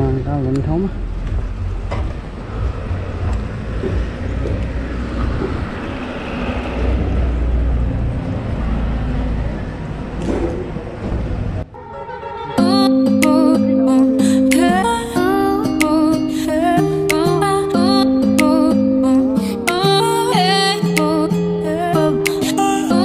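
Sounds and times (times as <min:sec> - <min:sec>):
wind noise on microphone: 0:00.0 - 0:11.7
motorcycle engine rumble: 0:00.0 - 0:16.8.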